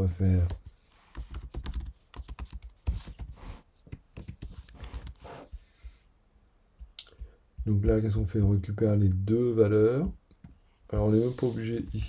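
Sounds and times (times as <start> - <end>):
computer keyboard typing: 0.4 - 3.3.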